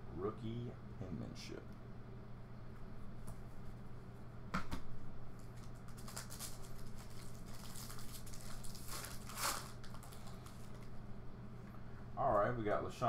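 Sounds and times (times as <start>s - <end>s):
foil wrapper crinkling: 5.4s - 10.9s.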